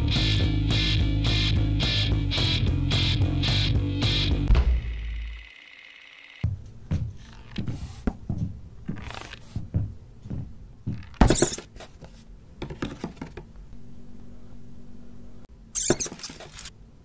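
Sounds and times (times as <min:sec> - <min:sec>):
knocks and scrapes on cardboard: 0:11.2 - 0:13.4
low hum: 0:13.6 - 0:15.6.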